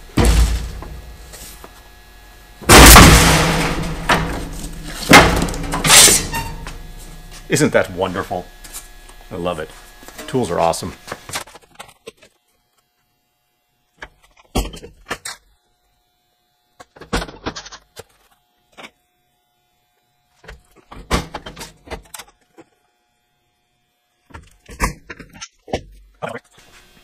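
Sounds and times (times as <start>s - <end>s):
sheet metal knocks and rattles: 0.2s - 1.0s, 2.7s - 6.9s.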